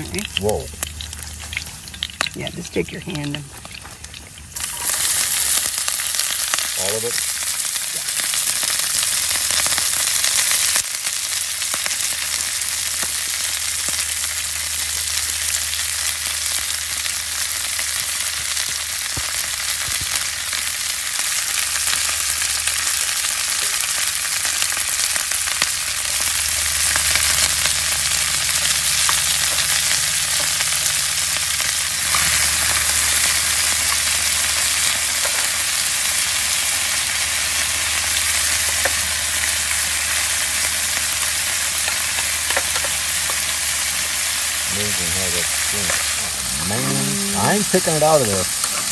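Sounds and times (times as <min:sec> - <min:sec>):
cabbage sizzling in hot oil: 0:00.0 - 0:48.9
low hum: 0:24.2 - 0:34.7.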